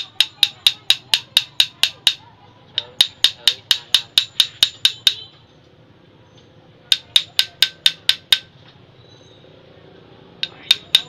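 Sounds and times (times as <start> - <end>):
steel rod tapping metal: 0.0 - 5.3, 6.9 - 8.5, 10.4 - 11.0.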